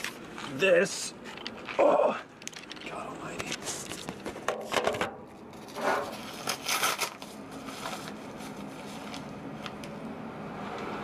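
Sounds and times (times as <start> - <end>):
handling rustling and rubbing: 5.5 - 9.8.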